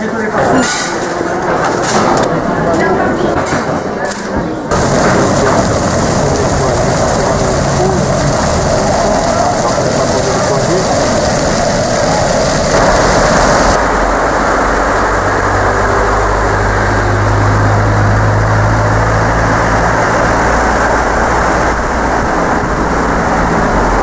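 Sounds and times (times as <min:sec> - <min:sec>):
river rushing over gravel: 0:04.7 - 0:14.3
engine hum: 0:04.7 - 0:24.0
fountain jets splashing: 0:04.7 - 0:24.0.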